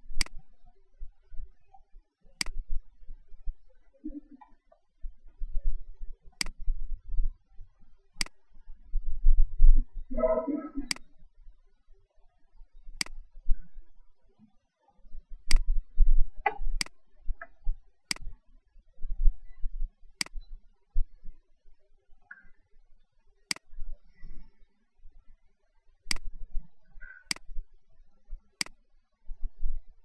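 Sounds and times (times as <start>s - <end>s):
sharp clicks: 0.1s - 0.4s, 2.4s - 2.6s, 6.4s - 6.6s, 8.2s - 8.4s, 13.0s - 13.2s, 15.5s - 15.7s, 16.4s - 17.5s, 18.1s - 18.3s, 20.2s - 20.5s, 23.5s - 23.7s, 26.1s - 26.3s, 27.0s - 27.5s.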